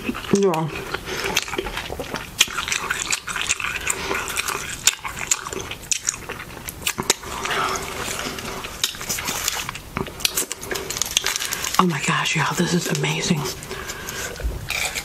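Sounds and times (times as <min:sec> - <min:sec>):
close-up chewing food: 0:00.0 - 0:15.0
lip smacks: 0:00.3 - 0:11.8.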